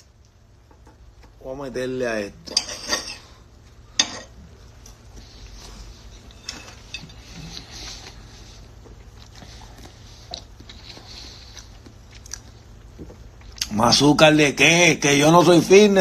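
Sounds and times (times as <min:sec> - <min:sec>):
knife and fork scraping on plate: 0:02.5 - 0:03.4, 0:06.0 - 0:08.2.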